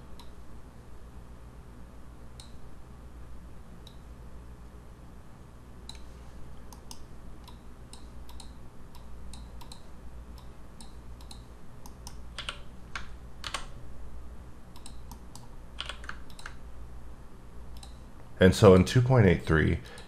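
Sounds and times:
mouse clicks: 0.1 - 0.4, 2.4 - 2.6, 5.9 - 6.1, 6.7 - 13.7, 14.8 - 16.6, 17.7 - 18.0
keyboard key presses: 11.2 - 13.7.

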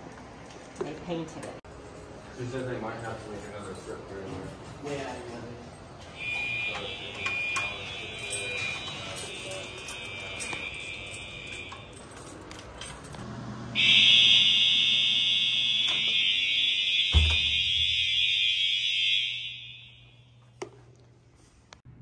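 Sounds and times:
fire alarm horn: 6.0 - 12.5, 13.7 - 20.6.

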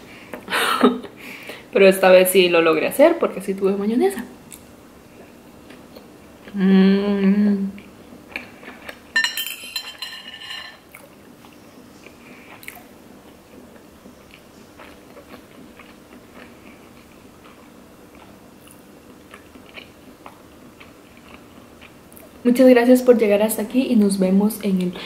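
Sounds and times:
low room hum: 0.0 - 25.0
person humming with full mouth: 6.5 - 7.8
close-up chewing: 10.9 - 22.4.

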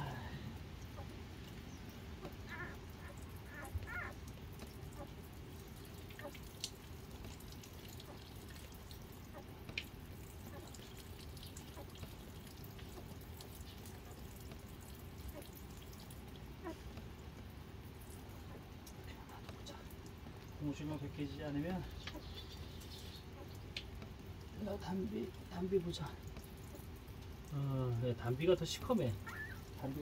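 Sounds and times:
puppies suckling wet clicks: 0.8 - 27.7, 28.3 - 30.0
puppy squeaks: 2.5 - 4.2, 29.2 - 29.7.

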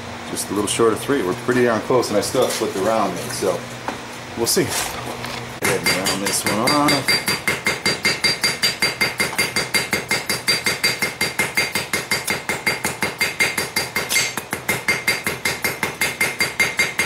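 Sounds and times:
hammer ringing on anvil: 5.6 - 17.0.

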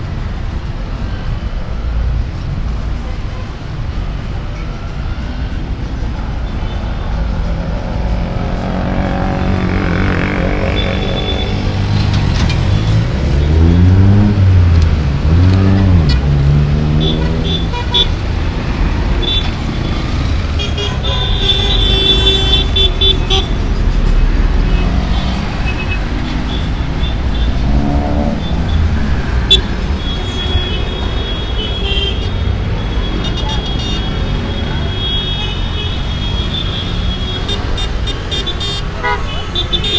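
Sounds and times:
vehicle engines revving: 0.0 - 39.9.

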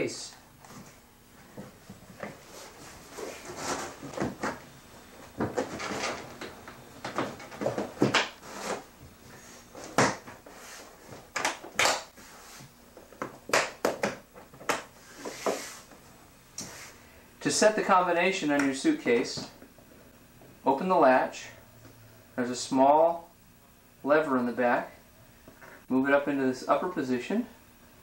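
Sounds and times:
rustling: 0.7 - 11.3.

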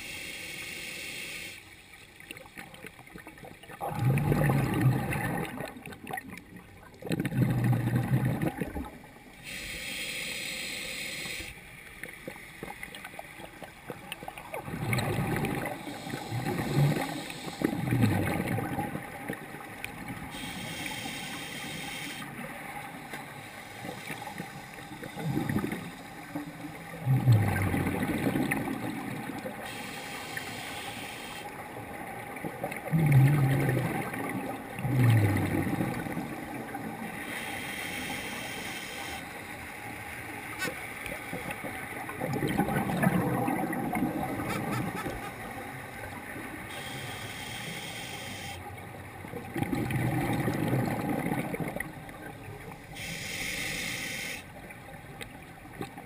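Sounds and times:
gurgling exhaled bubbles: 3.4 - 9.0, 13.9 - 20.4, 25.0 - 29.7, 32.4 - 37.2, 41.3 - 45.4, 49.3 - 52.4
diver breathing through regulator: 9.4 - 11.6, 15.7 - 17.9, 20.3 - 22.3, 29.6 - 31.5, 37.2 - 39.4, 46.7 - 48.6, 53.0 - 54.5.

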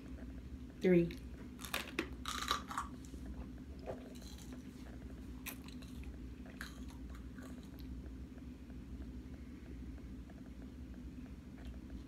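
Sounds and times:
faint chewing clicks: 3.8 - 9.4.

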